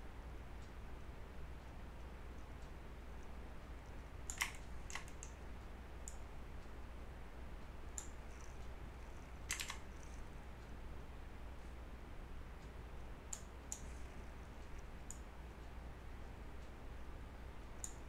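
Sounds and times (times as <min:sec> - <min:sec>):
faint low hum: 0:00.0 - 0:18.0
mouse and keyboard clicks: 0:04.3 - 0:05.4, 0:08.0 - 0:10.2.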